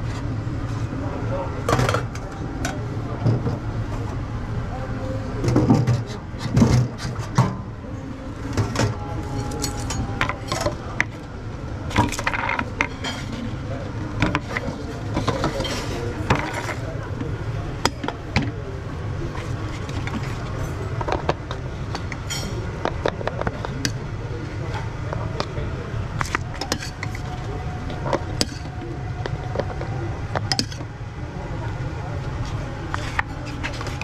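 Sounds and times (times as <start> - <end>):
background voices: 0.0 - 34.0
utensils and bowls clinking: 8.6 - 11.2, 11.9 - 13.6, 14.2 - 16.9, 19.7 - 24.0, 26.2 - 30.9.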